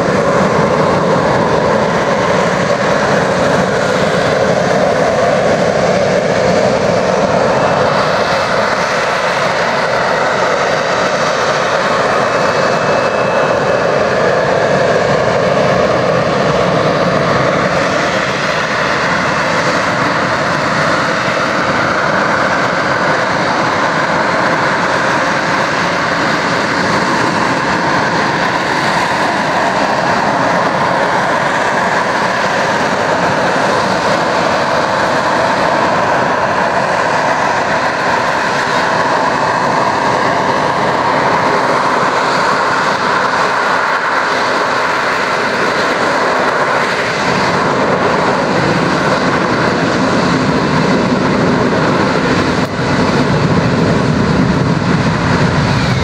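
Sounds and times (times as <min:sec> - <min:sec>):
jet engine roar with high whine: 0:00.0 - 0:56.0.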